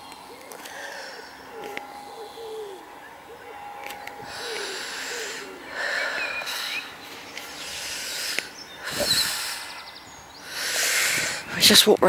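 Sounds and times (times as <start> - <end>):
rustling hissing noise: 3.8 - 11.8.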